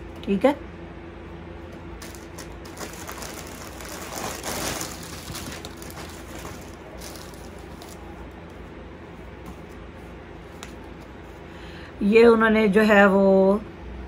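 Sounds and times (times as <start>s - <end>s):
low steady hum: 0.0s - 14.0s
clothes and paper rustling: 2.0s - 11.5s.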